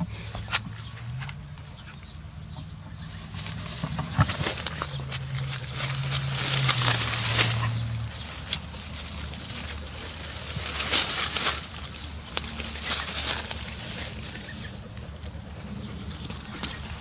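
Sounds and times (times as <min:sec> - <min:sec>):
dry leaves and twigs rustling: 0:00.0 - 0:17.0
low steady hum: 0:00.0 - 0:17.0.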